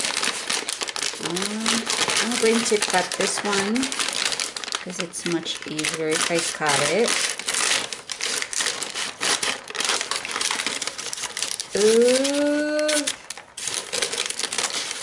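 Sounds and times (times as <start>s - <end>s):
paper crinkling: 0.0s - 15.0s
scissors cutting paper: 0.0s - 15.0s
person humming: 1.2s - 1.8s, 11.8s - 13.1s.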